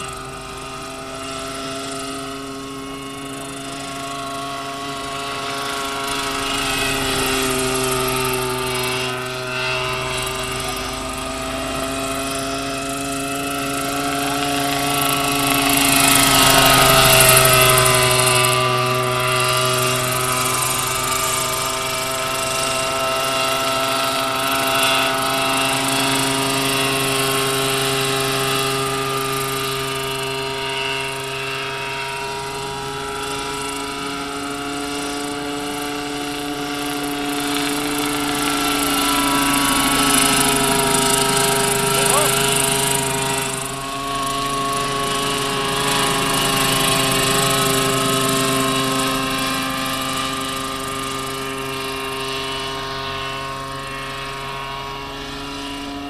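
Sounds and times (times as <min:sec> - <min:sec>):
model helicopter engine and rotors: 0:00.0 - 0:56.0.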